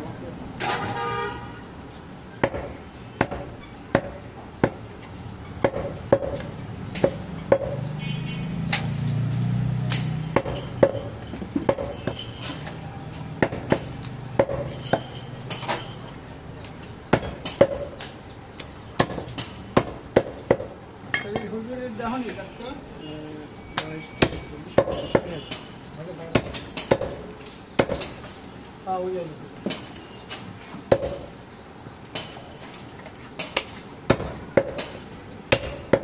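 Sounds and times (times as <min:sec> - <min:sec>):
cleaver chopping meat and bone: 0:02.4 - 0:08.0, 0:08.7 - 0:12.7, 0:13.3 - 0:15.7, 0:16.6 - 0:20.8, 0:23.8 - 0:25.7, 0:26.3 - 0:28.3, 0:30.9 - 0:31.3, 0:33.4 - 0:36.0.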